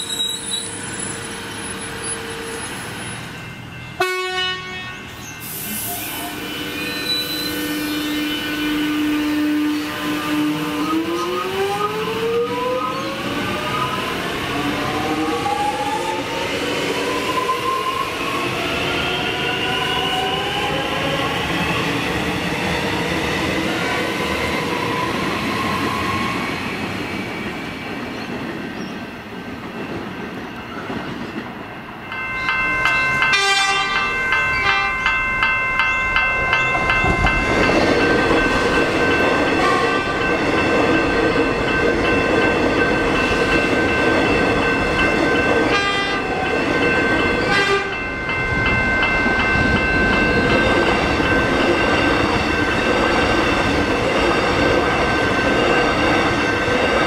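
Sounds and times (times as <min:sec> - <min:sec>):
train wheels rumbling: 0:09.8 - 0:57.0.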